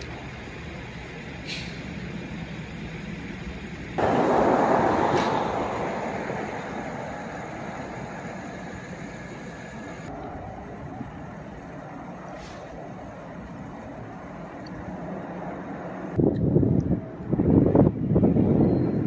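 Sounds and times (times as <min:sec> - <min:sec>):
train wheels rumbling on rail: 0:00.0 - 0:10.1
loud rushing noise: 0:04.0 - 0:10.1.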